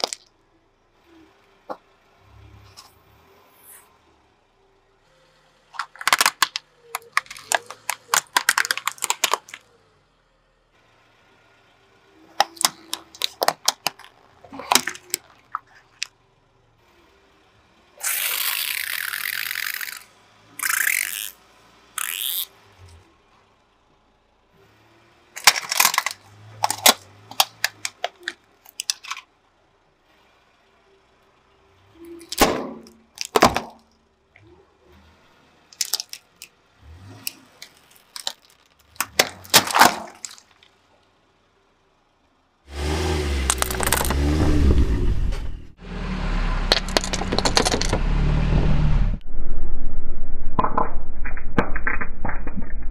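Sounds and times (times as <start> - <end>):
plastic cracking under car tyre: 0.0 - 0.3, 5.8 - 9.6, 12.4 - 16.1, 25.4 - 29.1, 32.2 - 33.9, 35.8 - 36.5, 37.6 - 40.7, 46.7 - 48.0
plastic bottles bursting: 5.8 - 9.6, 32.2 - 33.9, 37.7 - 40.6.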